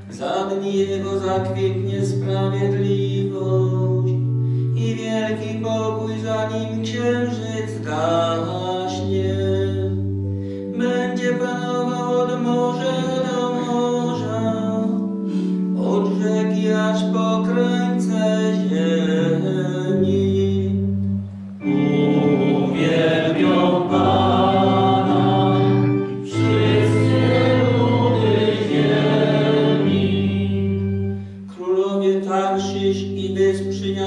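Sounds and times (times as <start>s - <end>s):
organ bass notes: 0.0s - 34.0s
congregation singing a hymn: 21.6s - 34.0s.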